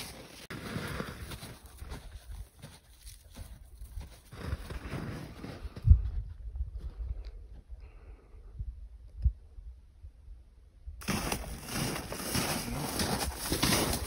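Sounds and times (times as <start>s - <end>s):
footsteps through dry grass and snow: 0.0s - 7.7s, 11.0s - 14.0s
wind rumble on microphone: 5.4s - 11.0s.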